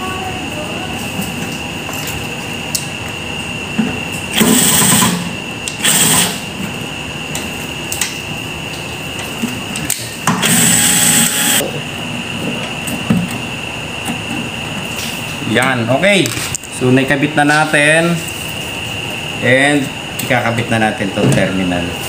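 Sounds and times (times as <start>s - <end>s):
steady high whine: 0.0s - 22.0s
cordless drill driving screws: 5.8s - 6.4s, 10.4s - 11.6s.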